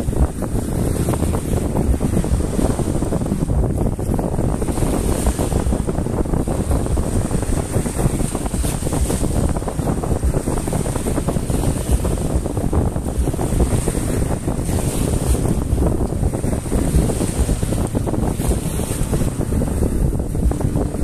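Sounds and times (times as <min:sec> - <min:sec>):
small waves washing onto sand: 0:00.0 - 0:21.0
wind buffeting microphone: 0:00.0 - 0:21.0.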